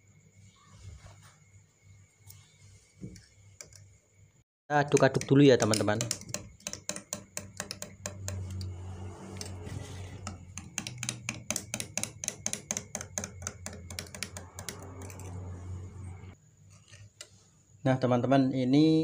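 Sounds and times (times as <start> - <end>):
low hum: 14.4 - 16.4.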